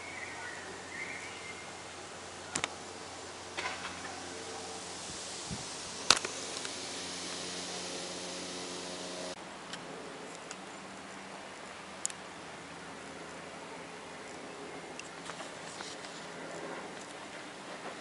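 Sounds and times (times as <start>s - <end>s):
propeller plane engine drone: 0.0s - 18.0s
sharp click: 2.5s - 2.8s, 6.1s - 6.8s.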